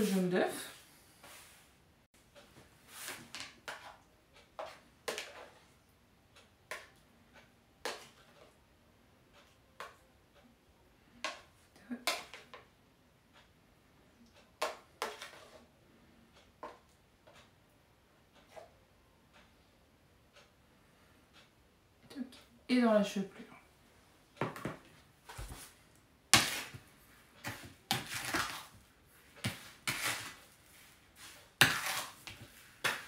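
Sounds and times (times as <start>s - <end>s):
metal spoon scraping plastic plate: 3.0s - 5.6s, 14.6s - 15.6s, 26.4s - 26.8s, 27.4s - 28.8s, 29.4s - 33.0s.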